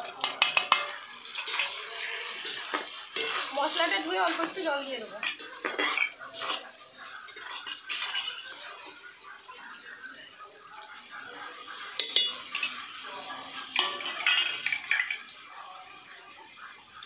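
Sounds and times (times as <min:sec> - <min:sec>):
water hissing in hot pan: 0:00.0 - 0:17.0
spatula scraping a pan: 0:00.1 - 0:08.9.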